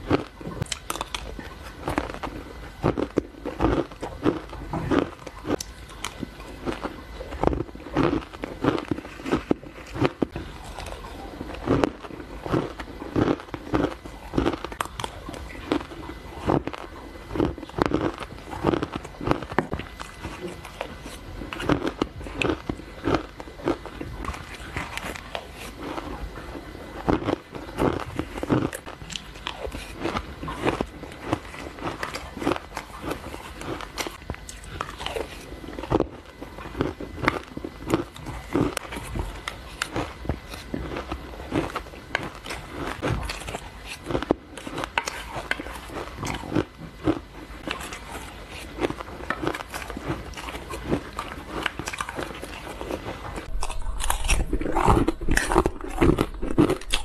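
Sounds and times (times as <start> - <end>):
person crunching ice: 27.1 - 57.0.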